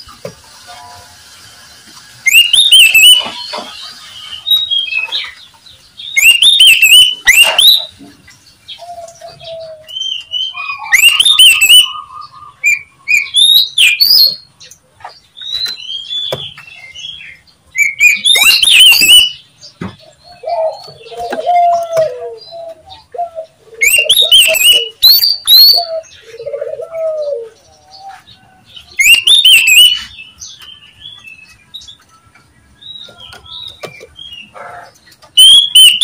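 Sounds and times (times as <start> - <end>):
bird whistled song phrases: 2.2 - 3.5, 6.1 - 7.9, 9.6 - 14.4, 17.8 - 19.4, 23.8 - 26.0, 29.0 - 30.2, 35.3 - 36.0.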